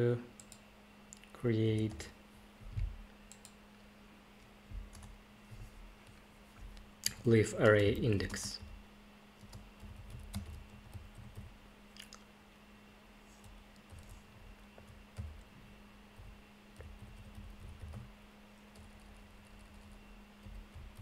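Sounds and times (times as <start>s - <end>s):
low steady hum: 0.0s - 21.0s
typing on computer keyboard: 9.4s - 11.5s, 16.8s - 18.1s.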